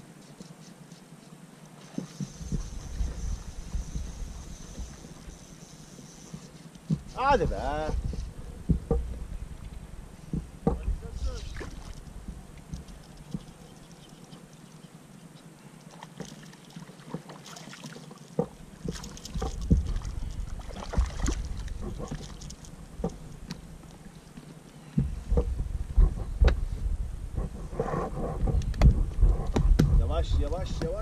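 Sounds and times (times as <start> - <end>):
low wind rumble: 2.2 - 5.9, 6.8 - 15.6, 18.5 - 31.0
water splashes: 10.9 - 13.6, 15.8 - 23.3.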